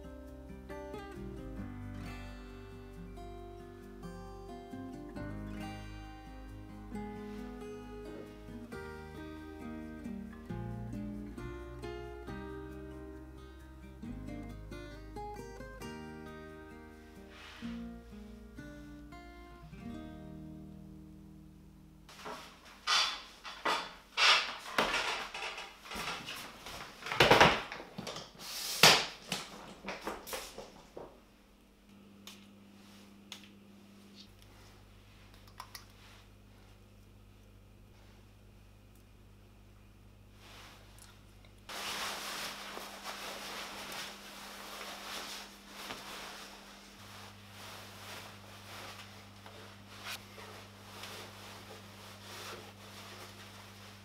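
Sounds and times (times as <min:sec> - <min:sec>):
low steady hum: 0:00.0 - 0:27.1, 0:30.8 - 0:54.0
fabric rustling: 0:22.1 - 0:27.0, 0:41.7 - 0:54.0.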